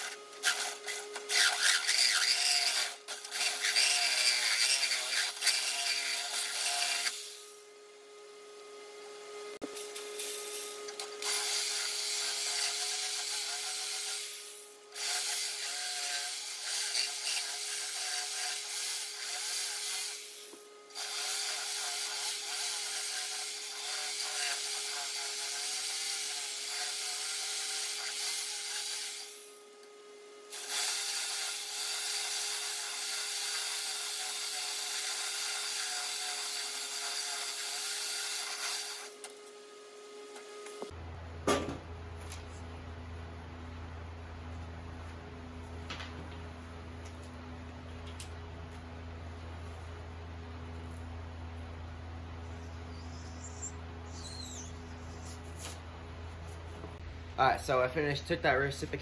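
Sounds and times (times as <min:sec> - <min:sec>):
reciprocating saw cutting wood: 0:00.0 - 0:07.6.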